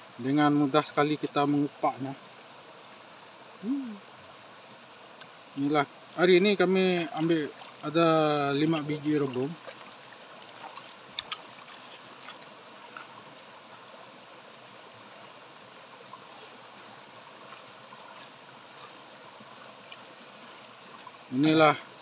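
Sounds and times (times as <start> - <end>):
stream trickling over stones: 0.2 - 22.0
clicks and splashes in water: 9.4 - 13.1.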